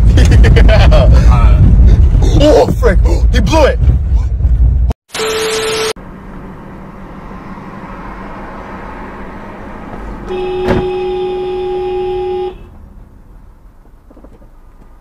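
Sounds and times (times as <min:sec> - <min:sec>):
road and tyre noise: 0:00.0 - 0:15.0
car horn honk: 0:10.2 - 0:12.8.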